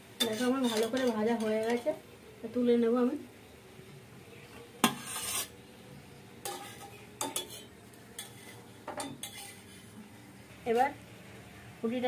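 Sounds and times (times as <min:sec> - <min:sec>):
metal spatula scraping steel plate: 0:00.2 - 0:01.9, 0:04.8 - 0:05.6, 0:06.4 - 0:10.0.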